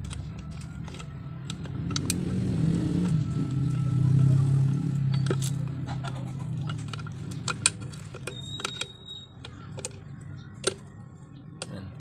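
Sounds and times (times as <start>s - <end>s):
metallic clicks of engine parts: 0.0s - 2.4s, 5.0s - 11.0s
vehicle engine hum: 0.0s - 12.0s.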